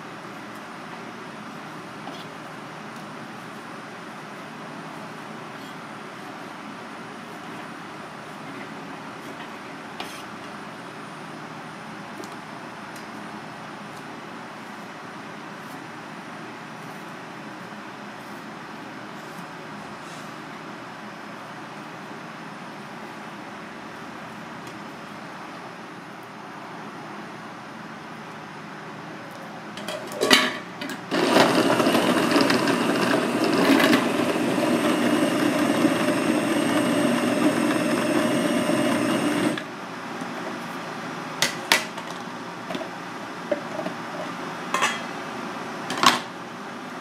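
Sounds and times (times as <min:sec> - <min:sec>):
food processor running: 0:31.1 - 0:39.7.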